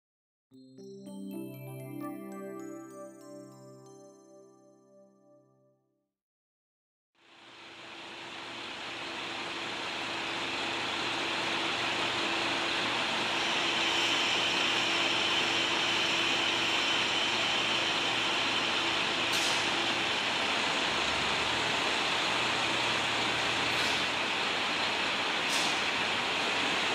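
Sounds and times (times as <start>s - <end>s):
diesel railcar engine drone: 7.3s - 26.9s
air hiss: 25.4s - 26.0s.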